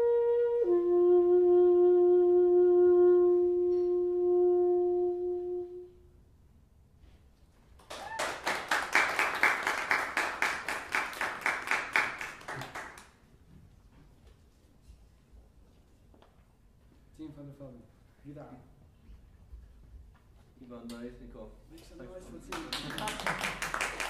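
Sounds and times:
saxophone long note: 0.0 - 6.2
audience clapping: 7.8 - 13.3, 22.2 - 24.0.

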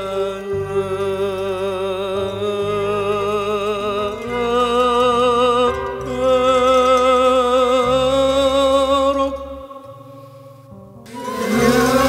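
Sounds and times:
man singing religious song: 0.0 - 10.4, 11.2 - 12.0
low held accompaniment: 0.0 - 12.0.

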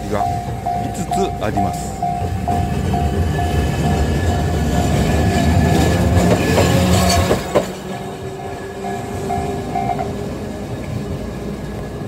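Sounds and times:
level crossing bell dinging: 0.0 - 5.3
tram wheels rumbling on rails: 0.0 - 12.0.

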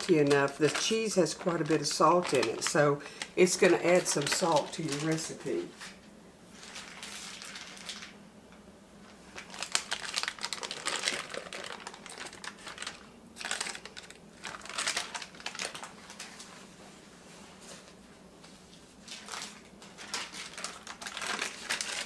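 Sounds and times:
plastic bag crinkling: 0.0 - 8.2, 9.1 - 16.6, 19.0 - 22.0.

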